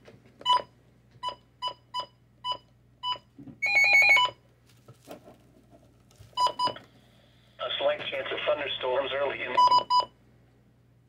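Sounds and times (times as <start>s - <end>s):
radio short beeps: 9.5s - 10.0s.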